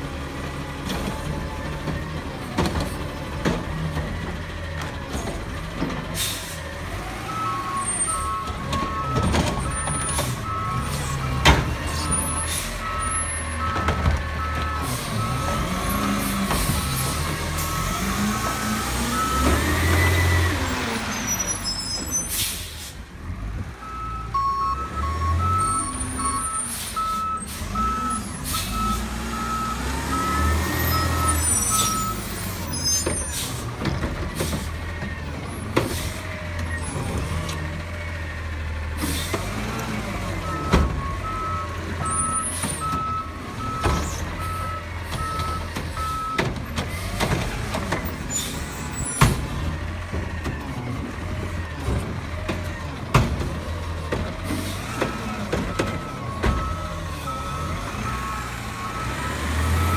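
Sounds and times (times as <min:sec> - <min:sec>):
truck engine rumbling: 0:00.0 - 0:59.9
reverse alarm beeping: 0:12.1 - 0:15.6, 0:23.8 - 0:32.3, 0:40.4 - 0:46.4, 0:55.7 - 0:59.9.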